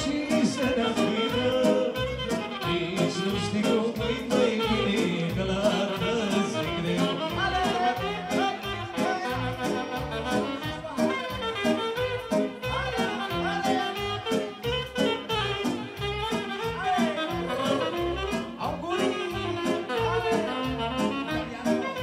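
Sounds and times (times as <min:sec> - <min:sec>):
person singing with band: 0:00.0 - 0:10.5, 0:13.0 - 0:14.5
live dance music: 0:00.0 - 0:22.0.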